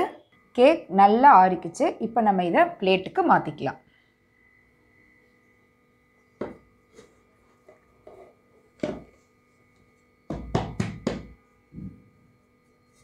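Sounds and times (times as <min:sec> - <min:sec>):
plate knocking on metal cake tin: 0:10.3 - 0:11.3.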